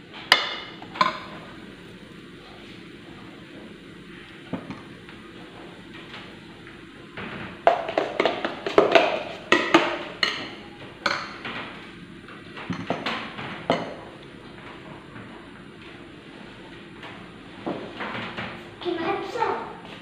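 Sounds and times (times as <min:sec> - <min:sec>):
kitchenware clattering: 0:07.2 - 0:11.8, 0:12.4 - 0:14.8.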